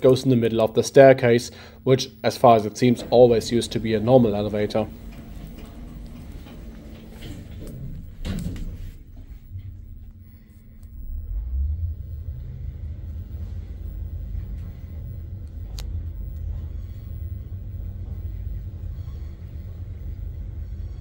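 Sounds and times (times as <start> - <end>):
elevator running rumble: 0.0 - 21.0.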